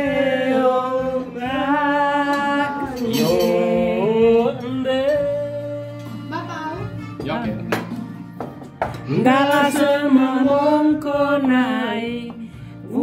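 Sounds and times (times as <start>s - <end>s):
men singing long notes: 0.0s - 6.2s, 9.0s - 13.0s.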